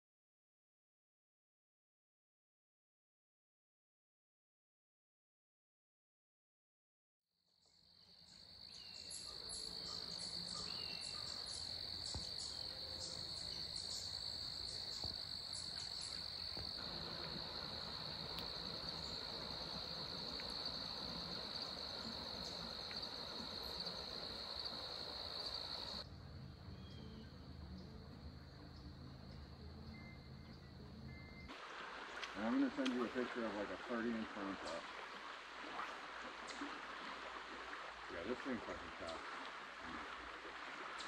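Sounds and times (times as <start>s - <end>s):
crickets chorus: 7.7s - 26.1s, 26.7s - 41.0s.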